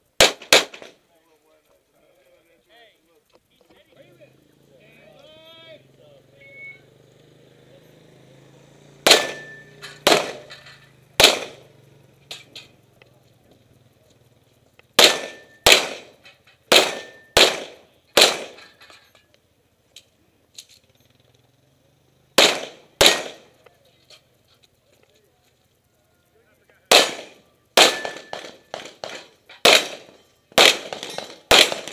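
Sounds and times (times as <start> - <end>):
pistol shots: 0.2 - 1.0, 9.0 - 10.6, 11.2 - 11.7, 15.0 - 18.8, 22.4 - 23.6, 26.9 - 31.9.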